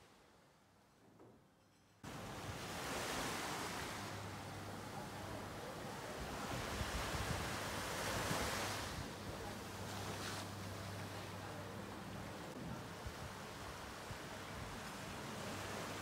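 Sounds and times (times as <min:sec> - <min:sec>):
small waves washing on beach: 0:02.1 - 0:16.0
wind rumbling on microphone: 0:06.0 - 0:10.0.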